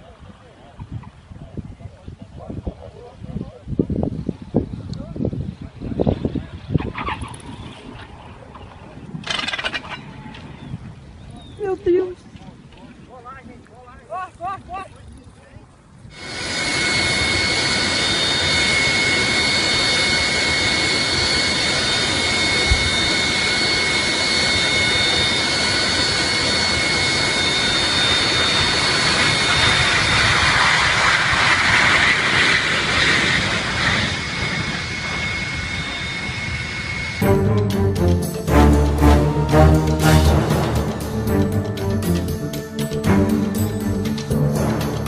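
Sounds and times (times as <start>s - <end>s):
high engine whine: 16.1s - 45.0s
jet engines roaring: 16.1s - 45.0s.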